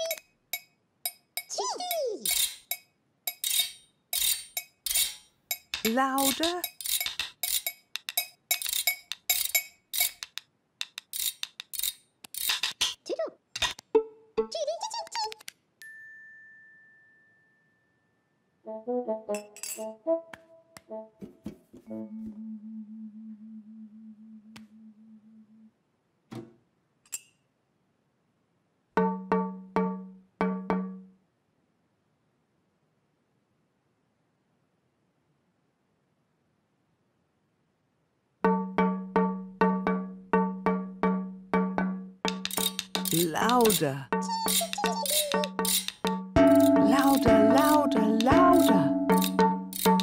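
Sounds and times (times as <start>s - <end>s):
spoons clinking: 2.2s - 12.9s, 19.4s - 19.9s, 42.3s - 50.0s.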